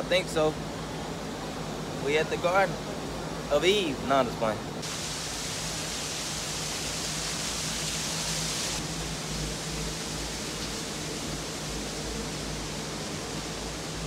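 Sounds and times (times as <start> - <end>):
bright hiss: 4.8 - 14.0.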